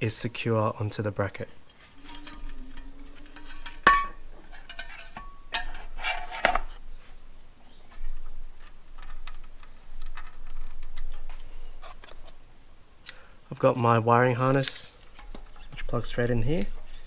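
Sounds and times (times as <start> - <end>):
metal clanks and scrapes: 1.7 - 6.8.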